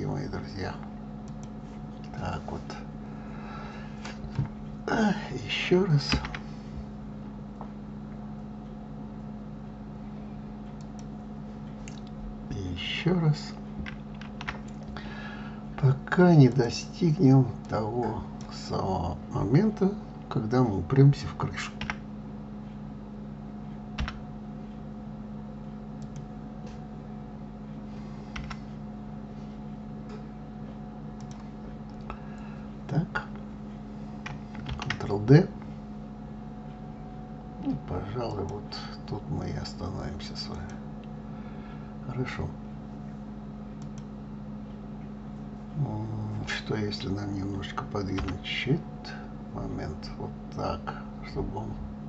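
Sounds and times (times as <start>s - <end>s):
low electrical hum: 0.0s - 52.0s
keyboard and mouse clicks: 13.8s - 15.0s, 28.3s - 28.6s, 31.2s - 32.1s, 34.2s - 35.1s, 48.2s - 48.4s.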